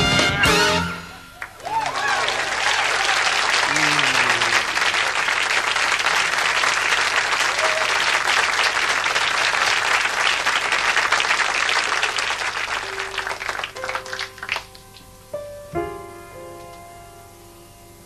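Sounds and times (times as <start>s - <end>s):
audience applauding: 1.1s - 15.1s.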